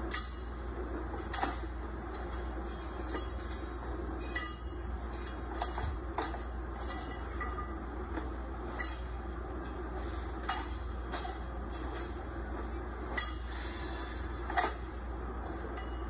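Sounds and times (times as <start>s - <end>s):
factory machinery hum: 0.0s - 16.0s.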